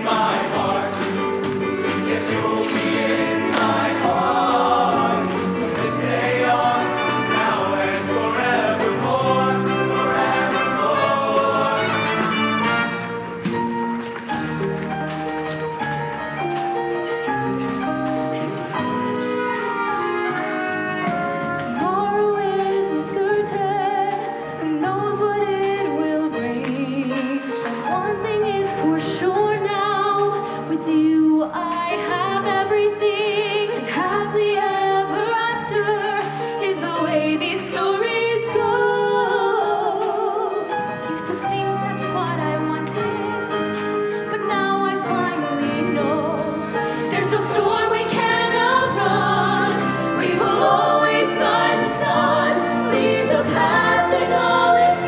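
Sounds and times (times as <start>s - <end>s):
live band playing: 0.6s - 26.0s
women singing with vibrato: 21.6s - 43.5s, 44.2s - 55.0s.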